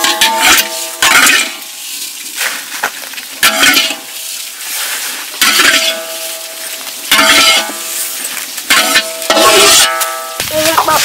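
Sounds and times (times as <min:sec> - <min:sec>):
rice grains hissing and rattling: 0:00.4 - 0:09.0.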